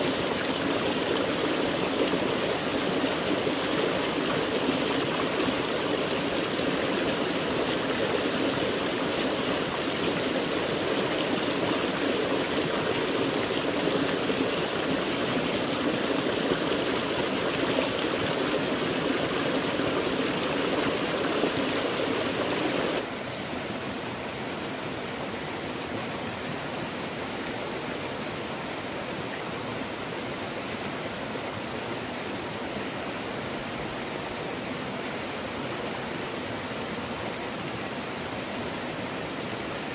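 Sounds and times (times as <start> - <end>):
stream water rushing: 0.0 - 39.9.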